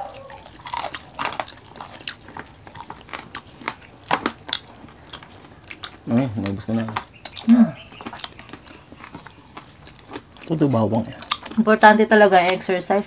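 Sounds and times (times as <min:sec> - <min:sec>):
person chewing crispy food: 0:00.0 - 0:11.6
mouth clicks: 0:03.7 - 0:10.0.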